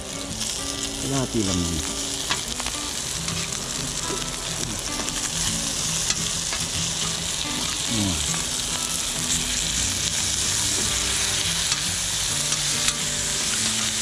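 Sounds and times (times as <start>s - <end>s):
meat and onions sizzling on griddle: 0.0s - 14.0s
metal spoon scraping griddle: 3.3s - 3.6s.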